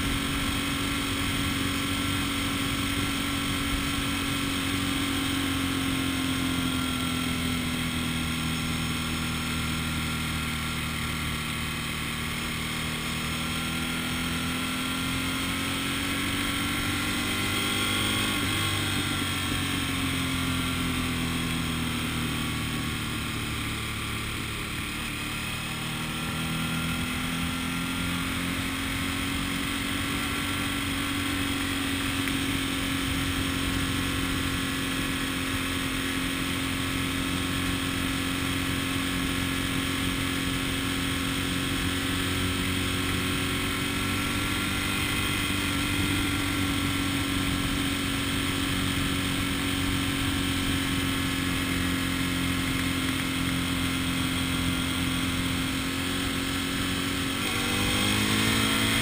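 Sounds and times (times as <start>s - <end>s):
road noise: 0.0s - 59.0s
vehicle engine: 0.0s - 59.0s.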